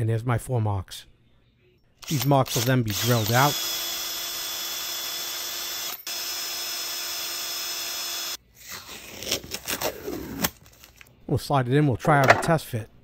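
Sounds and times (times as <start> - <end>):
power drill boring plastic: 2.0 - 8.4.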